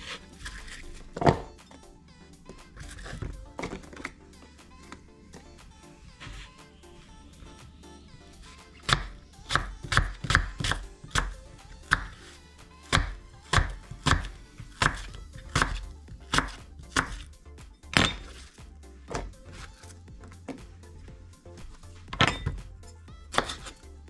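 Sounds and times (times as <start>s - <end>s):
knife chopping on wooden board: 1.2s - 1.5s, 8.9s - 12.2s, 12.9s - 17.2s, 17.9s - 18.4s, 23.3s - 23.8s.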